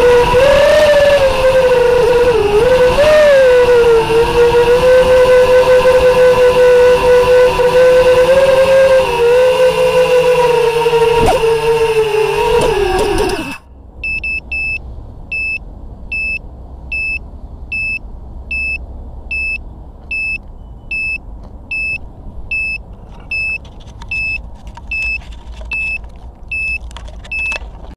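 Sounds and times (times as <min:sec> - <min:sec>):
locator beeper short high beeps: 0:14.0 - 0:27.6.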